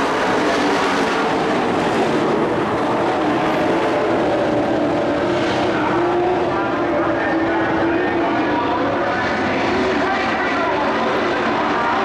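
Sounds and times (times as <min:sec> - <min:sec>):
race truck engines droning: 0:00.0 - 0:12.0.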